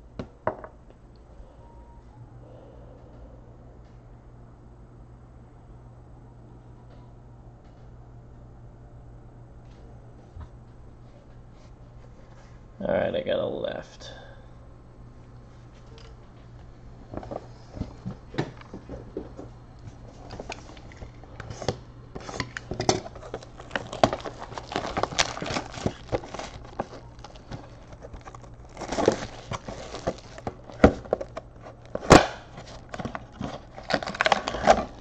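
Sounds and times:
plastic wrap crinkling: 20.0s - 35.0s
cardboard tearing: 23.0s - 35.0s.

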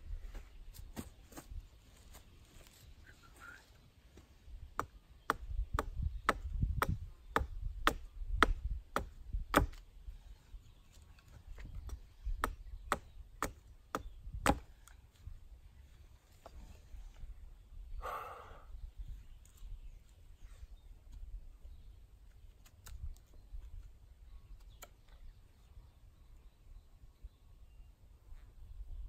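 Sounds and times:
axe chopping wood: 4.8s - 9.8s, 12.4s - 14.7s.

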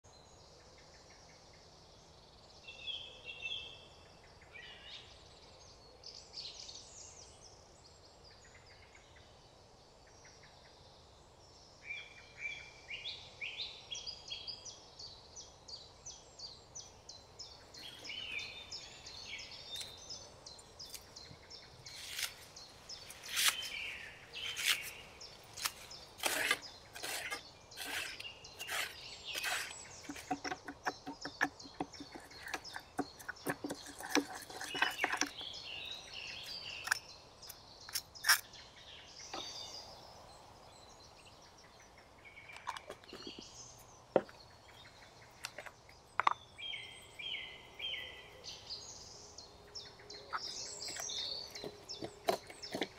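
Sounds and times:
birds singing: 0.0s - 52.9s
knife slicing leaves: 21.9s - 30.6s.

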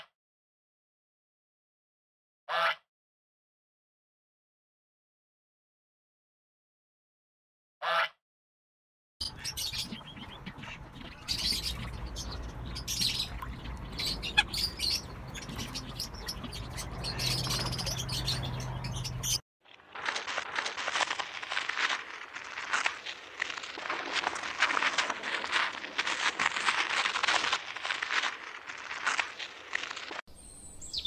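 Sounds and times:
birds chirping: 9.2s - 19.4s, 27.3s - 31.0s.

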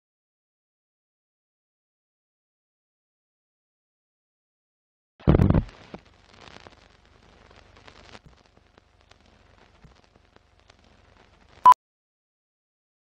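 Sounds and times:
faint film crackling with clicks: 5.2s - 11.7s.

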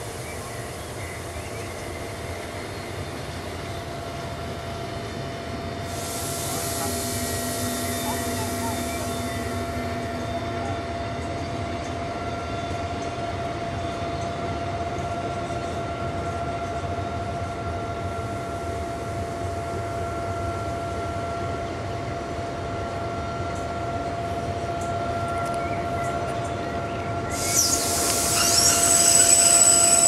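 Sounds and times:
train rolling past: 0.0s - 30.0s
high whine: 5.9s - 12.0s, 27.2s - 30.0s.

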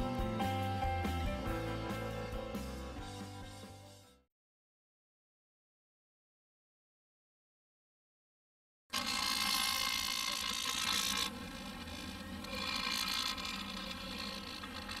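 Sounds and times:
vibration motor buzzing: 8.9s - 15.0s.

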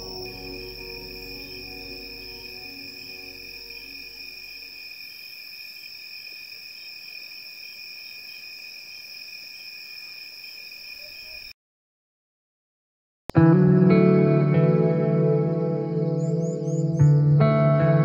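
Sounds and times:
soft music: 0.0s - 4.8s, 13.3s - 18.0s
insects droning: 0.0s - 11.5s.

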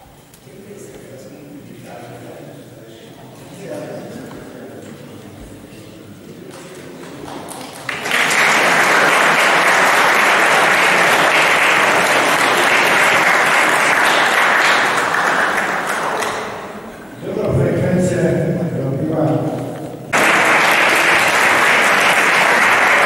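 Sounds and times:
audience applauding: 7.0s - 16.9s, 20.1s - 23.0s.

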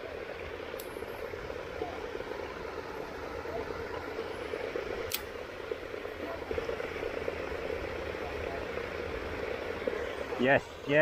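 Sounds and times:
rain falling on a pond: 0.0s - 11.0s
sharp click: 5.1s - 5.3s.

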